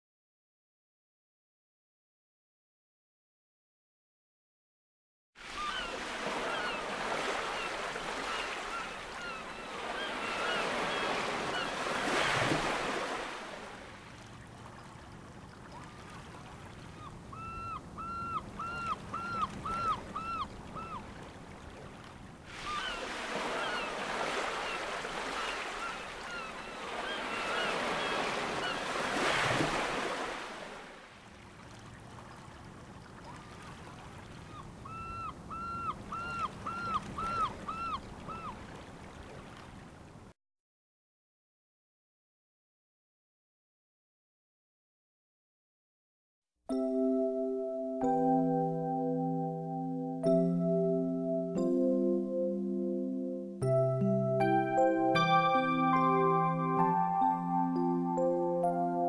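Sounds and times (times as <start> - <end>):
surf washing in and out: 5.4 - 40.2
bird calling in short notes: 22.6 - 24.0.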